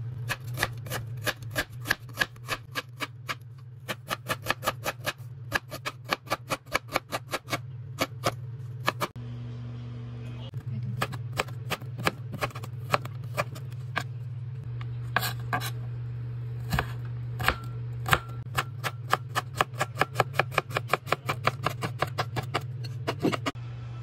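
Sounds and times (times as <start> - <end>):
knife chopping on cutting board: 0.3 - 9.1, 16.7 - 23.6.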